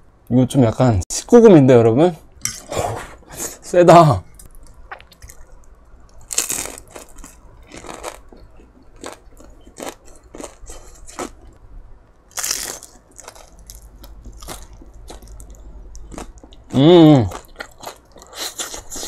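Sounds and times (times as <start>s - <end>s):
crisp chewing crunches: 4.9s - 11.4s
crunch of fried coating: 6.2s - 11.4s, 12.3s - 19.0s.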